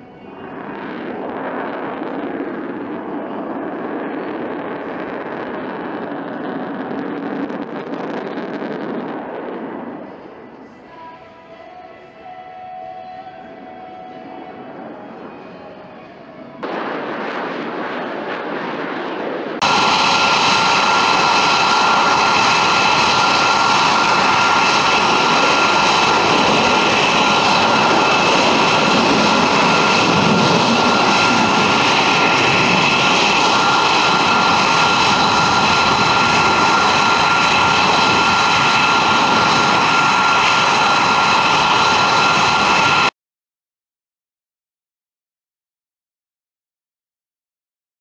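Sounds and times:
jet engine roaring: 0.0 - 11.2, 13.0 - 43.1.

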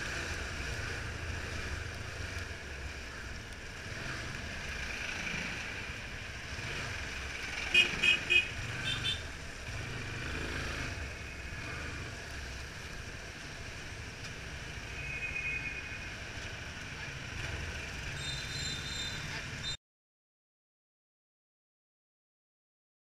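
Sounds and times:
motorcycle engine running at low speed: 0.0 - 14.9.

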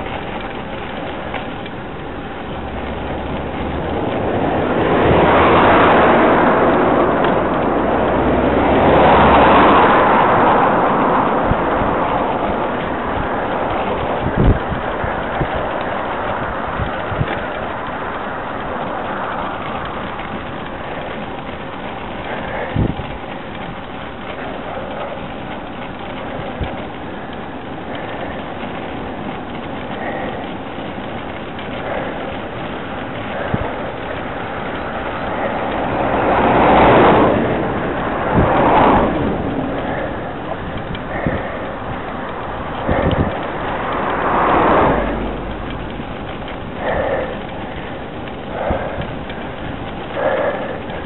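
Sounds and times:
bike tyres on tarmac: 0.0 - 51.0
cars passing: 0.0 - 51.0
low steady rumble: 0.0 - 51.0
rushing wind: 0.0 - 51.0.

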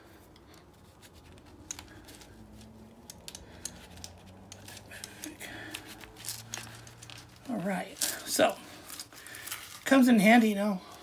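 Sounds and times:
light clicks and taps of tools: 0.2 - 7.5.

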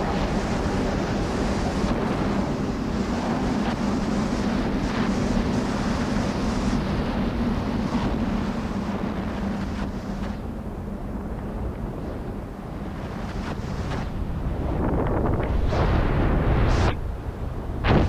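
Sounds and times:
low steady hum: 0.0 - 18.0
wind rushing: 13.1 - 18.0.

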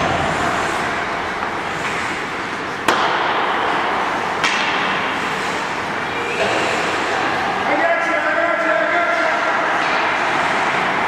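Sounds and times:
hockey puck cracks: 2.8 - 5.1, 9.1 - 10.9.

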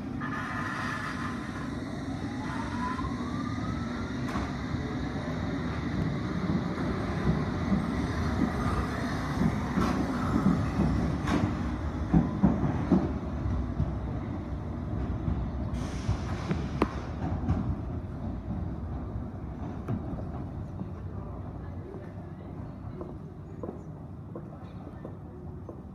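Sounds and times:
train wheels rumbling on track: 0.0 - 25.9
brief hiss: 15.7 - 17.1.

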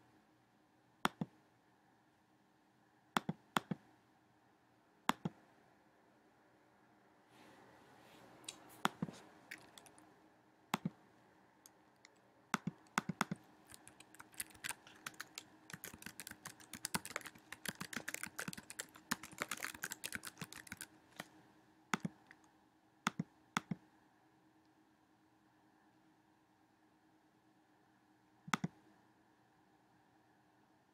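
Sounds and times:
keyboard typing: 8.8 - 10.0, 12.0 - 21.3, 22.0 - 22.2.

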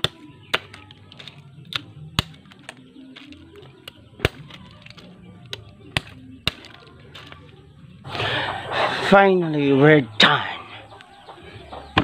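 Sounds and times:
knife chopping snail shells: 0.0 - 7.4.

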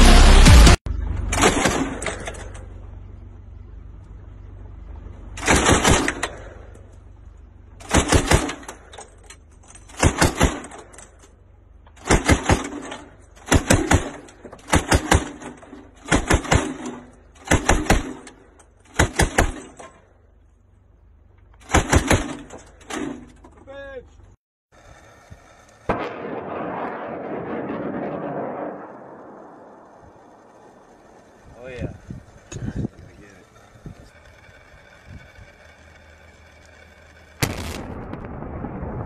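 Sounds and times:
low steady rumble: 0.0 - 10.0, 22.4 - 39.0.

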